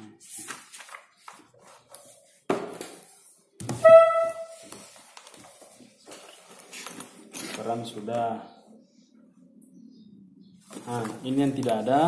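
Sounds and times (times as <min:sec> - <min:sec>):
paper rustling: 0:00.1 - 0:03.3, 0:04.2 - 0:07.8, 0:10.6 - 0:12.0.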